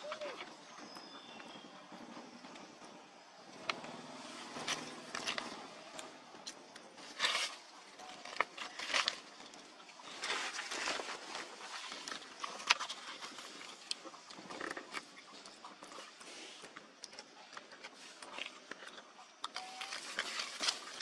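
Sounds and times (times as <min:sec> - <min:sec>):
dry leaves rustling: 0:10.0 - 0:13.6.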